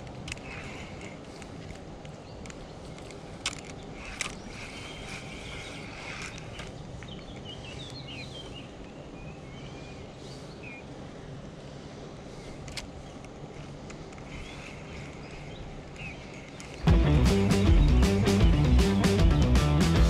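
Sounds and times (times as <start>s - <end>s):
sharp clicks: 0.0s - 8.0s, 12.6s - 16.9s
steady low hum: 0.0s - 20.0s
faint bird chirps: 3.8s - 11.0s.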